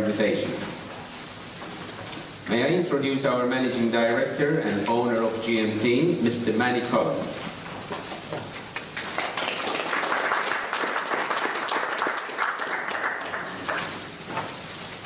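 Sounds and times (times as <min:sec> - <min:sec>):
audience applauding: 0:08.8 - 0:14.2.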